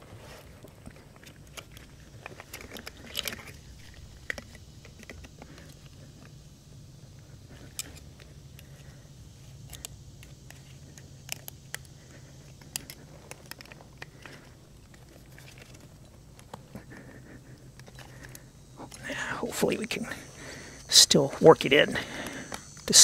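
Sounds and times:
low steady hum: 0:00.0 - 0:23.0
light metallic clicks and scraping: 0:07.5 - 0:17.0.

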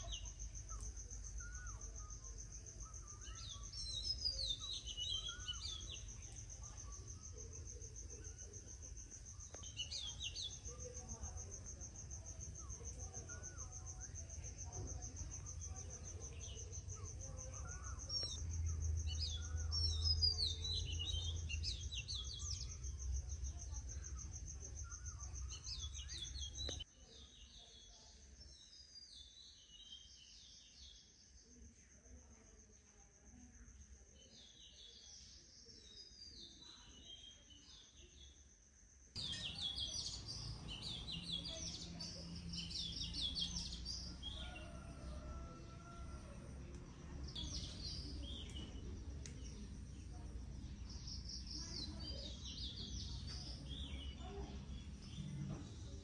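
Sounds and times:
birds twittering: 0:00.0 - 0:26.8, 0:39.2 - 0:46.2
insects trilling: 0:00.0 - 0:26.8, 0:35.8 - 0:56.0.

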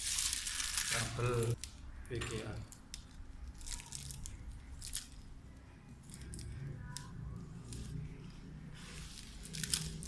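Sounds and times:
plastic wrapping crinkling: 0:00.0 - 0:05.3, 0:08.8 - 0:10.0.

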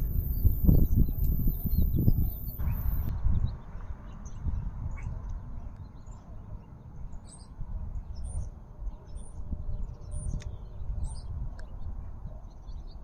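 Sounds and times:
steady low rumble: 0:00.0 - 0:06.6
small birds chirping: 0:00.0 - 0:13.0.

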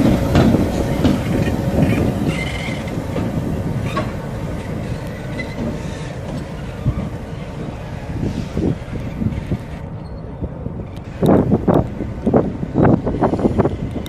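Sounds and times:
high wheel squeal: 0:00.0 - 0:11.0
diesel locomotives running: 0:00.0 - 0:14.0.

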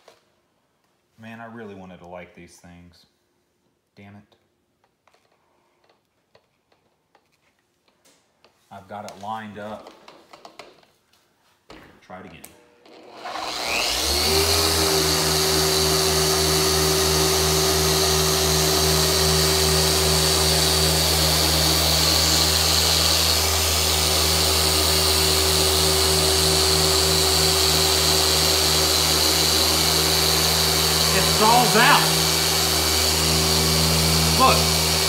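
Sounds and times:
car polisher whining hum: 0:13.2 - 0:35.0.

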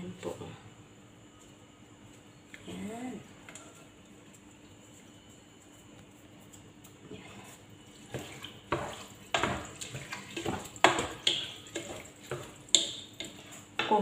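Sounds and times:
wooden spoon stirring in metal pot: 0:07.0 - 0:14.0.

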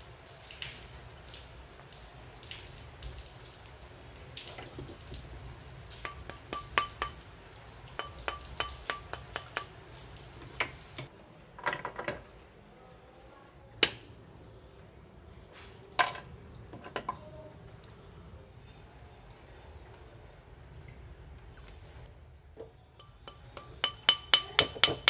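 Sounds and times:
metal strip knocking on mandrel: 0:08.0 - 0:09.7, 0:23.0 - 0:25.0.

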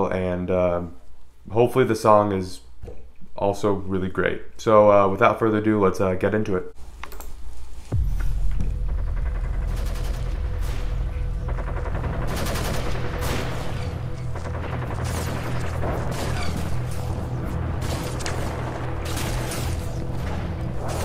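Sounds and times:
gunfire and booms: 0:07.9 - 0:21.0
low rumbling drone: 0:07.9 - 0:21.0.

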